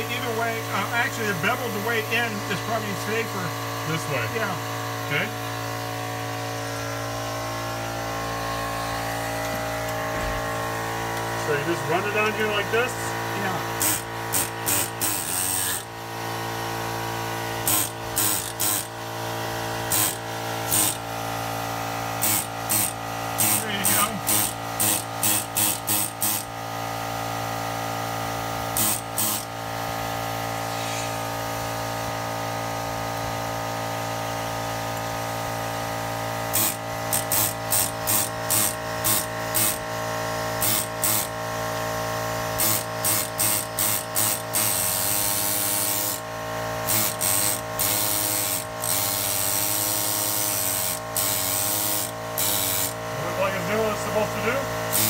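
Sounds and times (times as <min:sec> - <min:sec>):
steady hum: 0:00.0 - 0:26.5
pneumatic scraper hissing bursts: 0:11.9 - 0:16.5, 0:17.2 - 0:26.8, 0:28.3 - 0:32.0, 0:36.4 - 0:53.1, 0:54.0 - 0:55.0.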